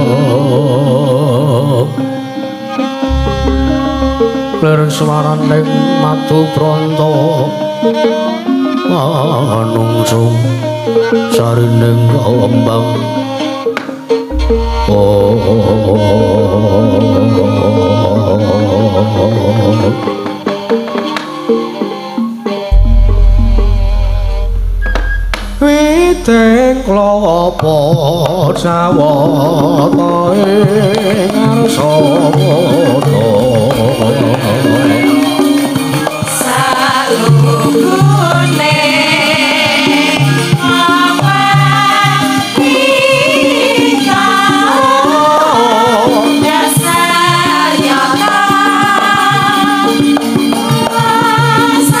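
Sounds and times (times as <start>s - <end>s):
person singing wavering melody: 0.0s - 13.6s, 14.3s - 20.2s, 22.7s - 35.4s
gamelan music: 1.8s - 18.5s, 21.6s - 29.6s.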